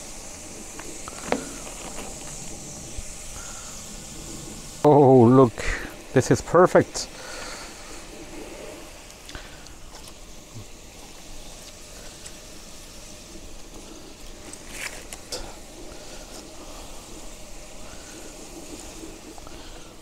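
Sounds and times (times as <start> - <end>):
food sizzling on a griddle: 0.0 - 20.0.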